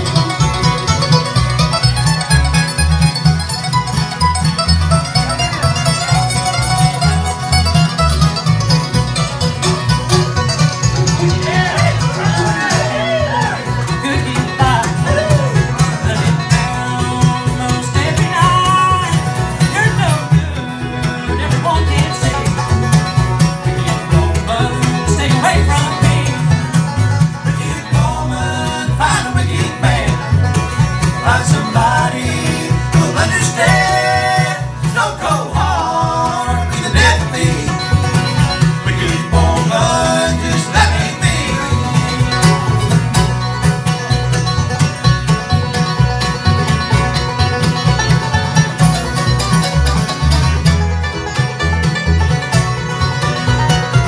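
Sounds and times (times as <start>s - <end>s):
acoustic guitars: 0.0s - 54.0s
banjo: 0.0s - 54.0s
mandolin: 0.0s - 54.0s
upright bass: 0.0s - 54.0s
voices singing: 11.1s - 22.7s, 23.8s - 43.2s.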